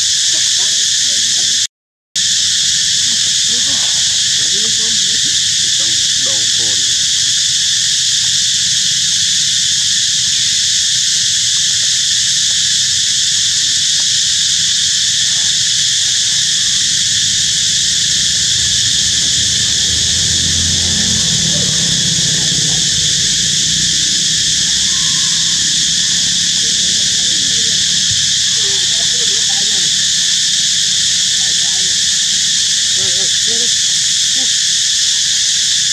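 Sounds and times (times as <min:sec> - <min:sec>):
insects buzzing: 0:00.0 - 0:35.9
low rumble: 0:15.4 - 0:28.9.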